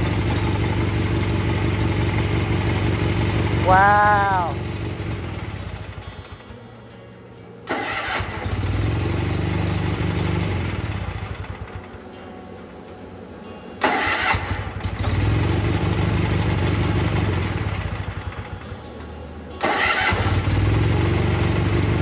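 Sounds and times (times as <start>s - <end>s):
small engine running: 0.0s - 6.5s, 7.7s - 12.0s, 13.8s - 18.8s, 19.6s - 22.0s
starter motor engaging: 7.7s - 12.0s, 13.8s - 18.8s, 19.6s - 22.0s.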